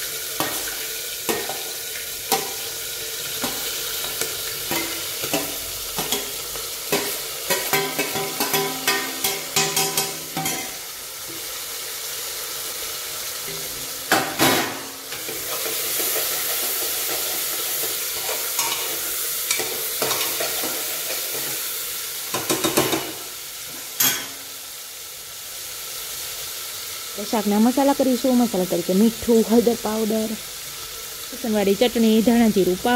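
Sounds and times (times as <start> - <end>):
vegetables sizzling in oil: 0.0 - 32.9
metal spoon clattering on pot: 6.9 - 10.7.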